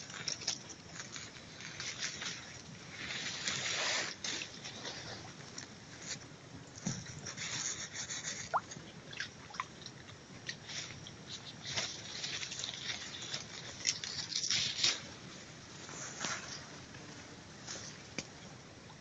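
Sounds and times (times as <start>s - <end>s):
dry leaves and twigs crackling: 0.0s - 6.2s, 10.5s - 18.4s.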